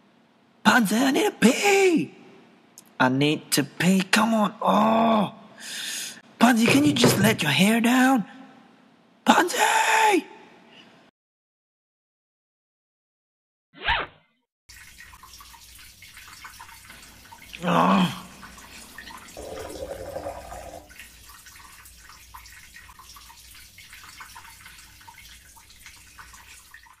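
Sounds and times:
urine stream splashing: 14.7s - 27.0s.

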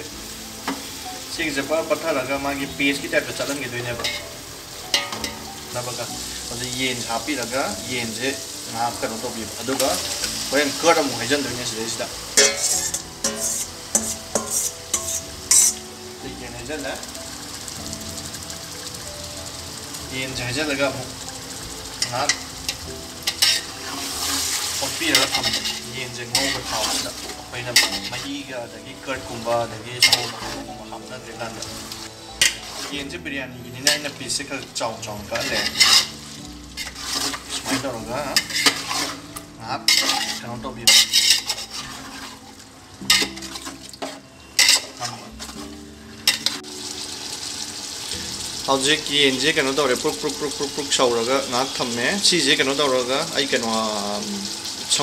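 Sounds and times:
food sizzling in a pot: 0.0s - 55.0s
metal tongs clinking on pot: 3.4s - 4.3s, 4.9s - 5.5s, 9.6s - 11.4s, 12.4s - 15.9s, 21.9s - 28.4s, 29.2s - 33.0s, 33.8s - 42.4s, 43.0s - 46.6s
spoon clinking against pot: 4.9s - 5.4s, 12.4s - 15.8s, 22.0s - 24.4s, 39.9s - 41.8s, 43.1s - 45.1s.

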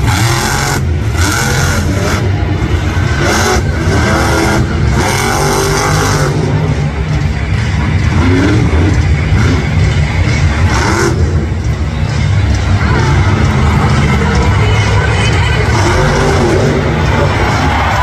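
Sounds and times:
monster truck engine revving: 0.0s - 18.0s.

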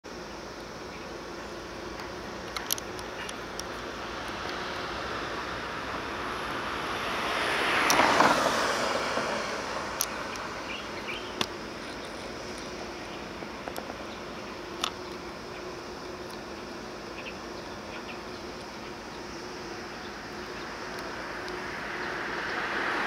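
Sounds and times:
steady low hum: 0.0s - 23.0s
vehicle passing close by: 3.8s - 12.5s, 19.1s - 23.0s.

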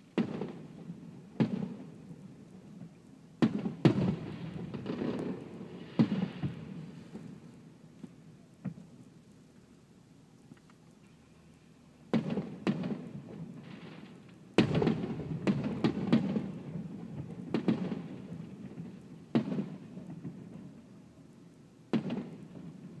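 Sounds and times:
fireworks bursting with booms: 0.0s - 7.8s, 8.6s - 9.0s, 12.1s - 21.0s, 21.8s - 23.0s.

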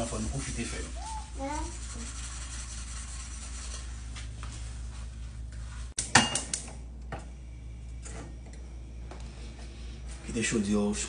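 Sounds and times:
faint rubbing: 0.0s - 5.9s
low steady hum: 0.0s - 11.0s.

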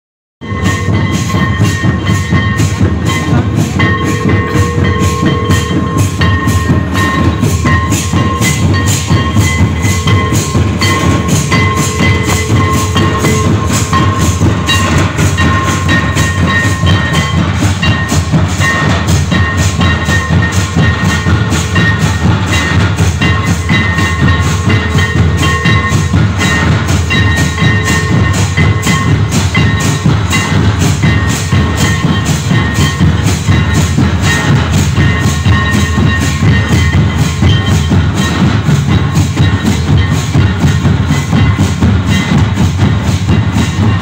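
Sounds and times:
thin high held tone: 0.4s - 18.9s
drums playing fast beat: 0.4s - 44.0s.

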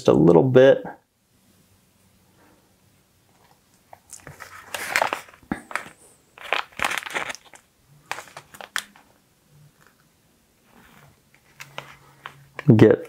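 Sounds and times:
plastic packet crinkling: 3.4s - 9.1s, 11.0s - 13.0s.

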